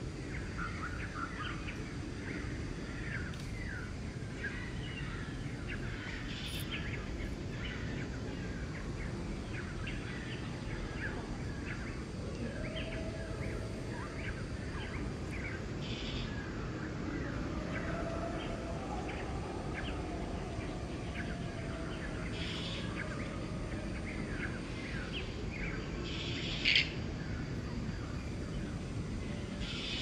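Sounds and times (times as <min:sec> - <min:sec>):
faint steady hum: 0:00.0 - 0:30.0
outdoor background rush: 0:00.0 - 0:30.0
bird chirps: 0:06.3 - 0:06.8.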